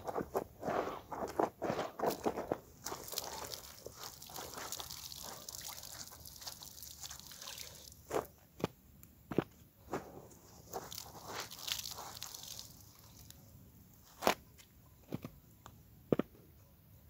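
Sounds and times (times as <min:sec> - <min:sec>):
cloth splashing into bucket: 0:02.8 - 0:07.9, 0:10.7 - 0:13.0
water dripping from wet cloth: 0:02.8 - 0:08.1, 0:10.7 - 0:13.4.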